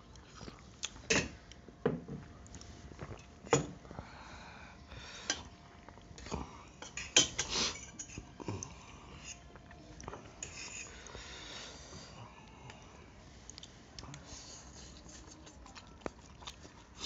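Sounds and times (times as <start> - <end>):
cutlery clinking on steel plates: 6.8 - 8.2.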